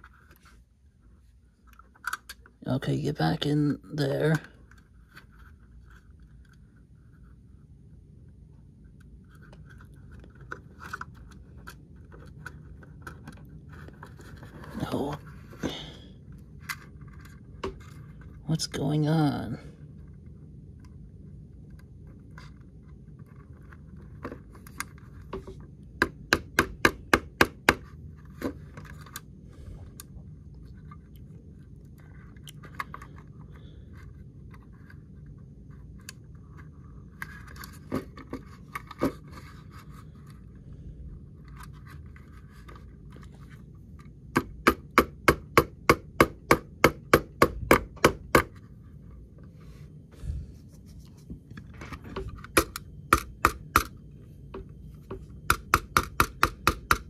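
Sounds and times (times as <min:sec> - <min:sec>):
light scraping and handling: 0:00.0 - 0:02.6, 0:04.2 - 0:18.8, 0:27.8 - 0:44.3, 0:48.5 - 0:53.0
sharp taps on small parts: 0:52.4 - 0:57.0.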